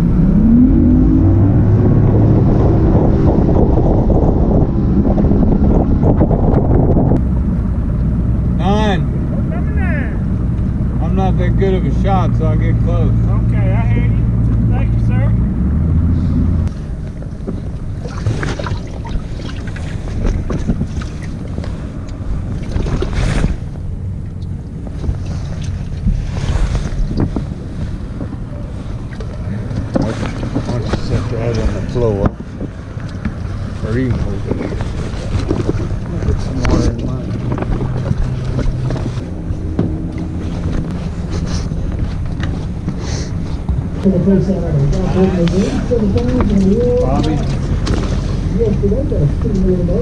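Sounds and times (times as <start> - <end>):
wind on microphone: 0.0 - 8.4, 15.8 - 50.0
water lapping on boat: 16.8 - 42.3
gear knocks and rustles: 24.2 - 43.9.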